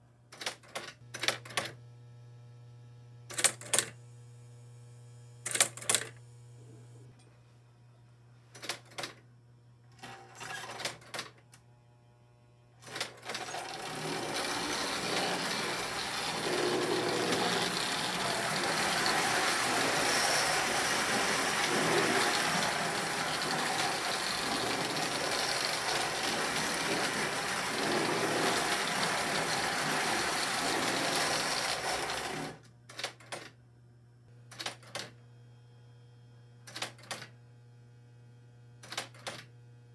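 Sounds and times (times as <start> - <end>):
low electrical hum: 0.0 - 39.9
toy train rattling on rails: 13.3 - 32.6.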